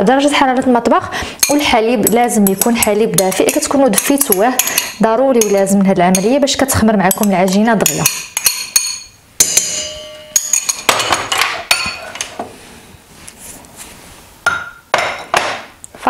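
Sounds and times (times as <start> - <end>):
spoon scraping metal bowl: 1.4 - 6.4
spoon tapping bowl and glass: 1.4 - 6.4, 7.1 - 12.0, 14.5 - 15.4
metal bowl ringing: 7.1 - 11.0.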